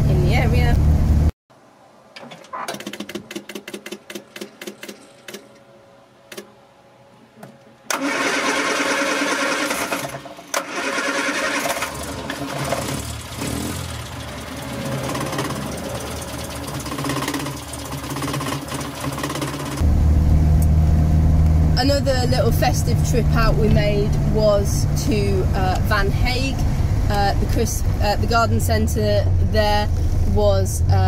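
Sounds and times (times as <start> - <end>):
car engine starting and running: 0.0 - 1.3, 7.9 - 31.0
electric fuel pump ticking: 7.9 - 19.8.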